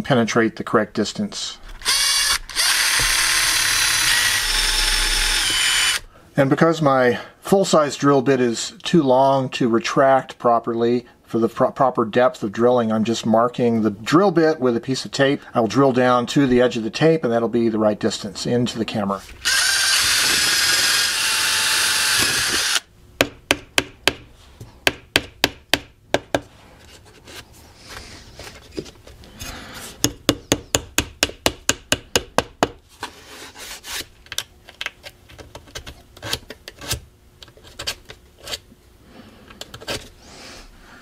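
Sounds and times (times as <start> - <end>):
electric drill boring wood: 1.8 - 6.1, 19.4 - 22.9.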